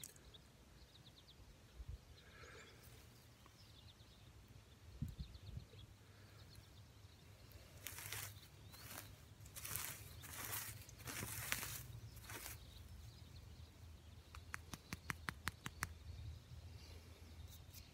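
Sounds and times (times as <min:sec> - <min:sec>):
dry grass rustling: 0:07.5 - 0:13.2.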